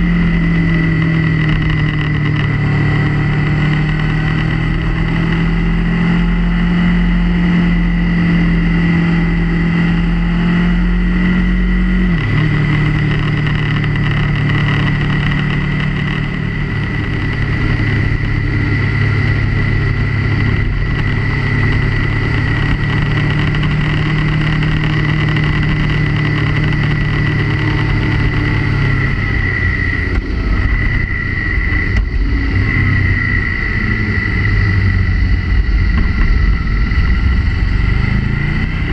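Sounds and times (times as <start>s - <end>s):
motorcycle engine cruising: 0.0s - 38.9s
wind noise on microphone: 10.6s - 38.9s.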